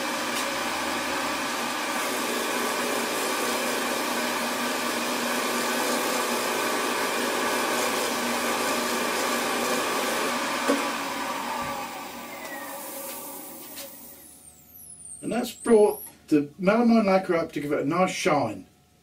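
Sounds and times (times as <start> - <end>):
cloth buffing spinning wood: 0.0 - 14.3
wood lathe whirring: 0.0 - 15.3.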